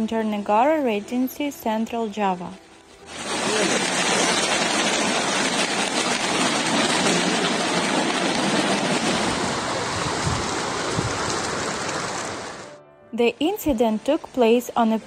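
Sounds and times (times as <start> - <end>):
flood water rushing: 3.0 - 12.8
heavy rain: 3.1 - 12.8.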